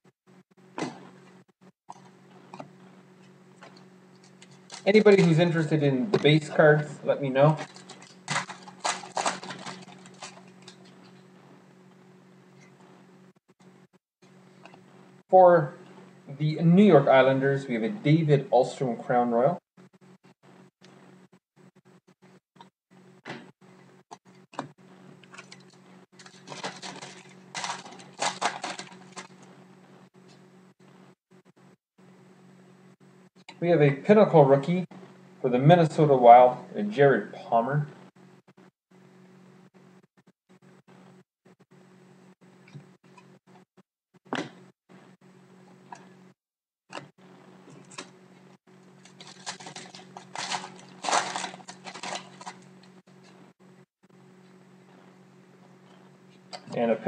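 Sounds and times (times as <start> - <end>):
steady low hum: 0.3 - 46.4, 47.0 - 57.0
foil wrapper crinkling and tearing: 4.2 - 5.6, 7.4 - 11.2, 25.3 - 29.5, 49.0 - 52.9.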